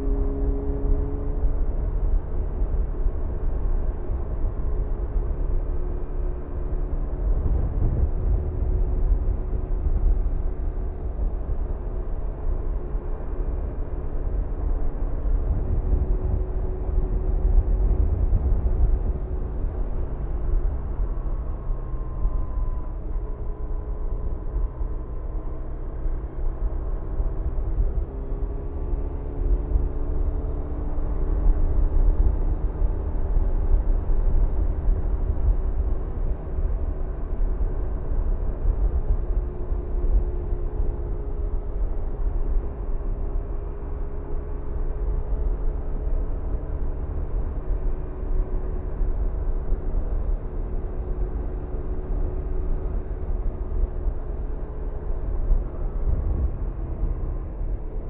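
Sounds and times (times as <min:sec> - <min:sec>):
wind rush over microphone: 0:07.0 - 0:10.4, 0:15.0 - 0:21.4, 0:52.8 - 0:58.0.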